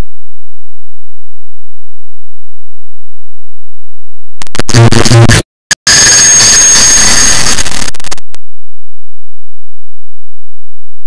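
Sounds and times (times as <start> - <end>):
digital buzzing burst: 4.4 - 8.2.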